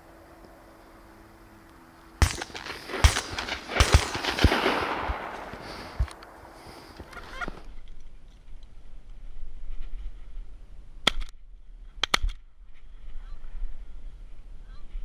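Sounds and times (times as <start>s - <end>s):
shotgun shots: 2.2s - 6.4s.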